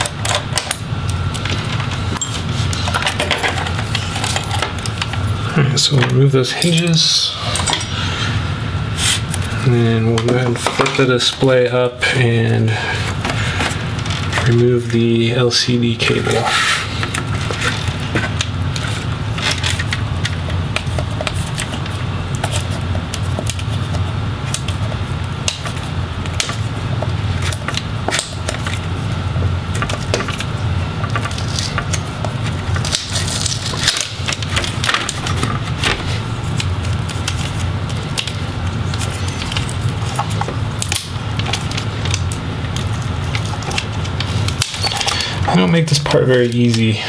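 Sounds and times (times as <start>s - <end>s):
steady low hum: 0.0s - 47.0s
plastic film and tape crackling: 16.0s - 46.9s.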